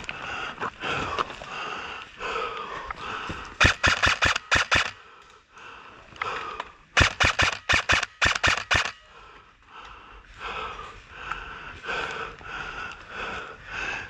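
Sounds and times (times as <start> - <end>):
airsoft gun shots: 3.6 - 5.0, 7.0 - 9.0.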